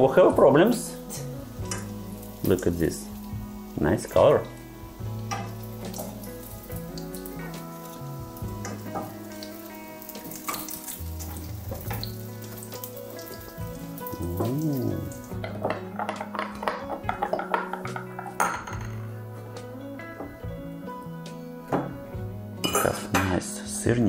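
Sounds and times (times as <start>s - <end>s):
background music: 0.0s - 24.0s
pancakes sizzling in a frying pan: 0.7s - 17.5s
metal utensils clinking on dishes: 1.1s - 2.0s, 5.2s - 6.2s, 10.2s - 12.2s, 15.4s - 19.1s, 22.6s - 23.4s
spatula and fork knocking on pan: 15.4s - 19.0s.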